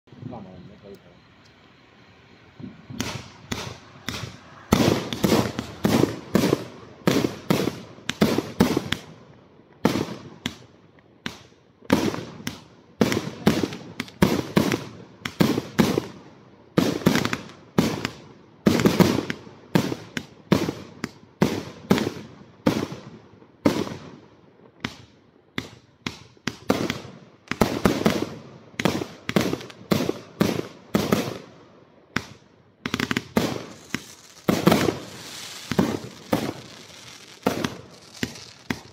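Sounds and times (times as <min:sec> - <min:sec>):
firework bangs: 0:02.5 - 0:38.9.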